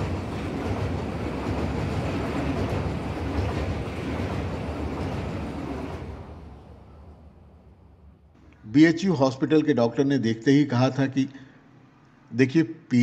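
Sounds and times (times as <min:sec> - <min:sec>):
train rumbling on rails: 0:00.0 - 0:08.3.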